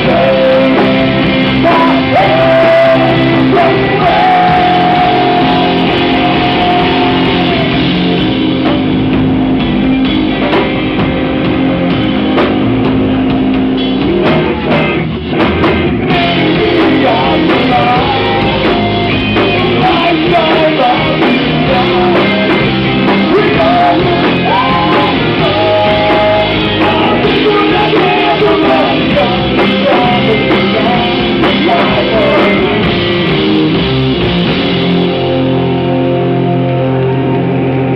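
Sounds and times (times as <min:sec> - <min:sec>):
person singing: 0:00.0 - 0:08.2, 0:16.1 - 0:32.9
bass: 0:00.0 - 0:37.9
drum kit: 0:00.0 - 0:37.9
guitars: 0:00.0 - 0:37.9.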